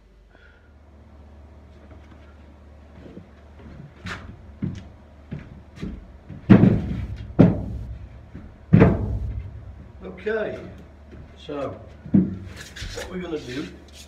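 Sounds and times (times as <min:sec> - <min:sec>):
hollow knocks of timber battens: 0:03.6 - 0:10.0, 0:12.0 - 0:12.6.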